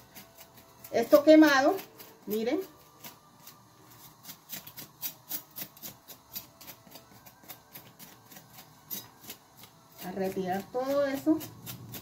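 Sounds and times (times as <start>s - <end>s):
knife scraping charred skin: 0.0s - 12.0s.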